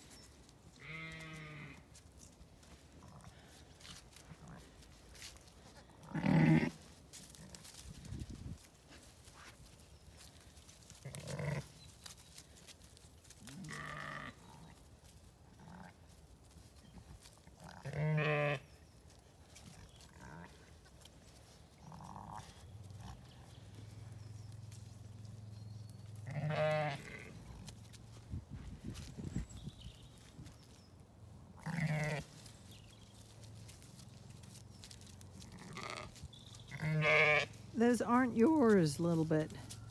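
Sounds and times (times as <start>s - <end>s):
sheep bleating: 0.8s - 1.8s, 6.1s - 6.8s, 13.5s - 14.4s, 17.7s - 18.6s, 26.2s - 27.4s, 31.6s - 32.3s, 35.4s - 37.6s.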